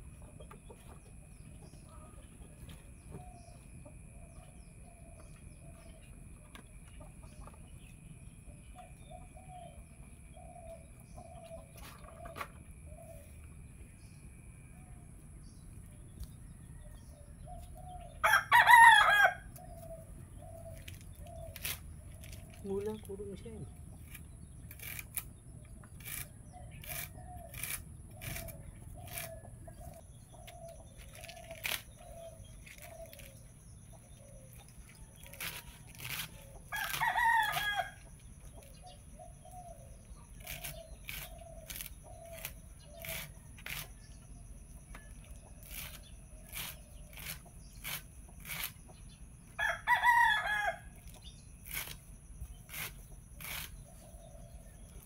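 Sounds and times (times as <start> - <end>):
rooster crowing: 18.2 - 19.5, 35.7 - 38.1, 49.6 - 51.0
knife cutting leaves: 20.6 - 23.1, 24.0 - 25.3, 26.0 - 29.4, 30.5 - 33.5, 34.6 - 38.0, 40.3 - 44.1, 45.2 - 48.8, 51.0 - 54.0.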